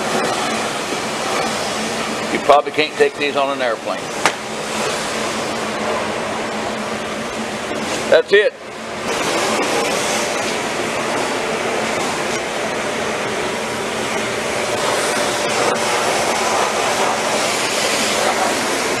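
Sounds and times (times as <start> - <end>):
steady rushing hiss: 9.0 - 19.0.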